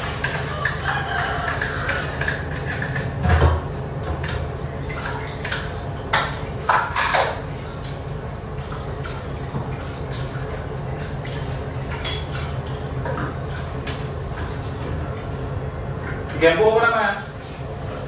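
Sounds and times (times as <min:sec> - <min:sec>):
dishes and utensils clattering: 0:00.0 - 0:04.4, 0:05.0 - 0:07.4, 0:11.9 - 0:12.5.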